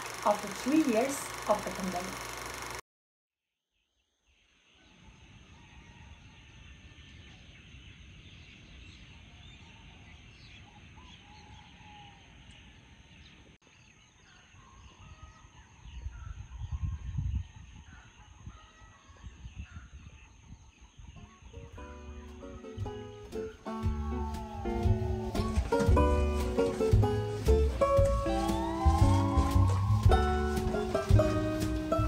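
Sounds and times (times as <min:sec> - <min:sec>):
birds chirping: 0:04.4 - 0:32.0
roosters crowing: 0:23.6 - 0:32.0.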